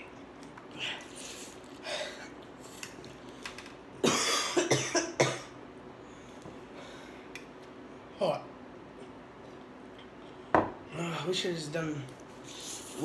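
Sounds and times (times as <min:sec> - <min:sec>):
boy coughing: 0:04.0 - 0:05.5.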